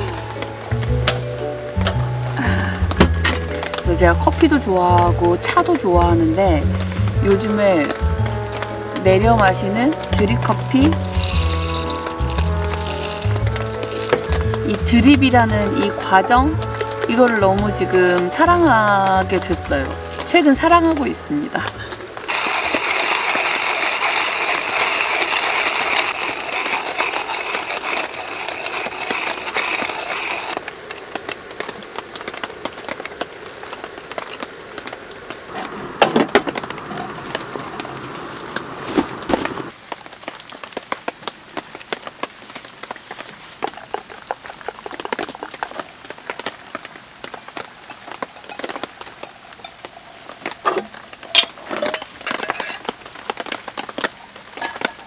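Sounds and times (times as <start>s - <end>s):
hand coffee grinder grinding beans: 7.0s - 30.7s, 35.5s - 39.8s, 43.5s - 55.0s
metal rattles: 10.9s - 14.6s.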